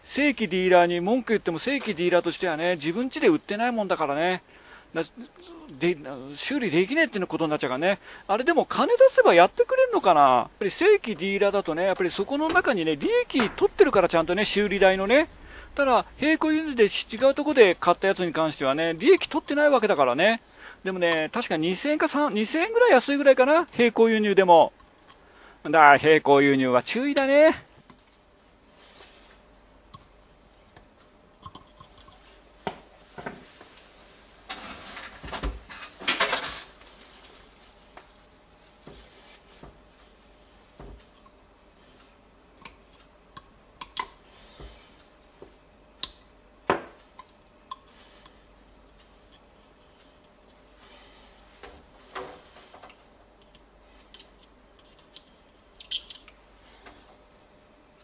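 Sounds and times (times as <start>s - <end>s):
clatter of small parts: 35.8s - 37.4s
light clicks and taps of tools: 47.0s - 50.6s, 52.8s - 55.3s.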